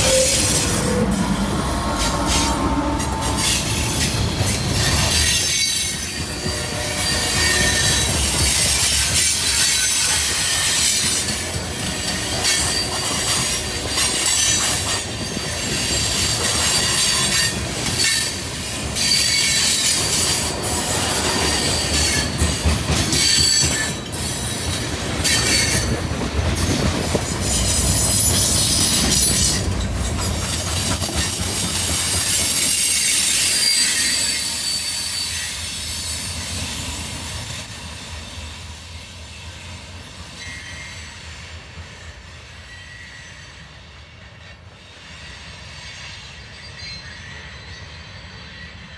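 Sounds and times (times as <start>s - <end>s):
freight cars rumbling: 0.0s - 5.3s
train wheels squealing: 0.0s - 48.9s.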